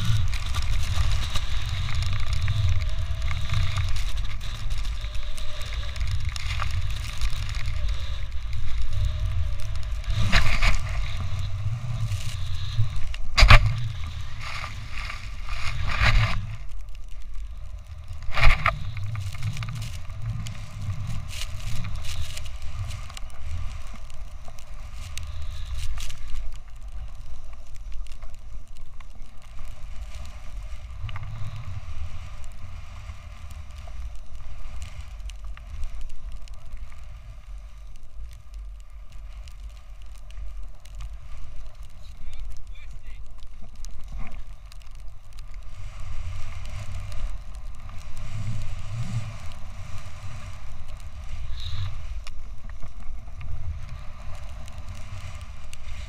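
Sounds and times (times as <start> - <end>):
snowboard hissing through snow: 0.0 - 16.7, 45.6 - 52.5
wind on microphone: 0.0 - 26.5, 45.5 - 56.0.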